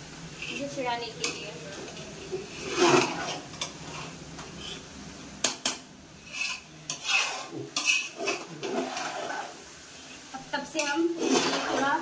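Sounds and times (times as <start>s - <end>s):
metal spatula scraping metal pot: 2.4s - 4.8s, 6.2s - 9.6s, 10.8s - 12.0s.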